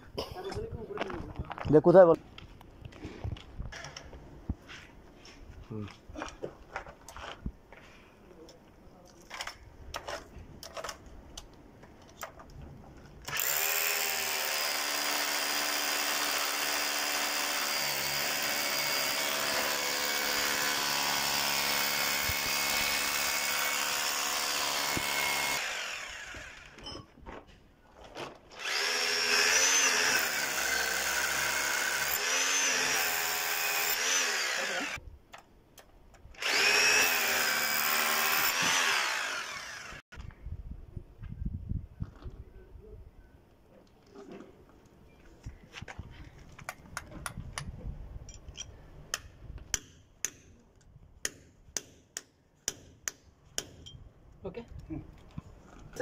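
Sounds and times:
hammer drill boring into concrete: 13.3s - 26.8s, 28.6s - 35.0s, 36.4s - 40.0s.

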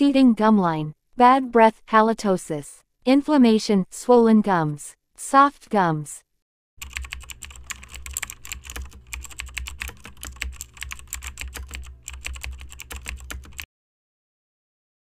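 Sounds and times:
keyboard typing: 6.8s - 13.7s.

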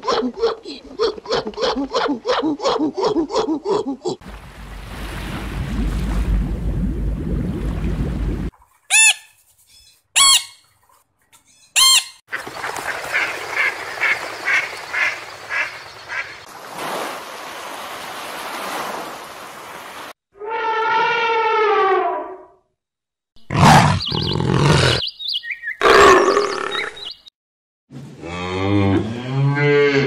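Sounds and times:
low rumble: 5.3s - 8.5s
ducks quacking: 11.8s - 16.5s
surf washing on beach: 16.4s - 20.1s.

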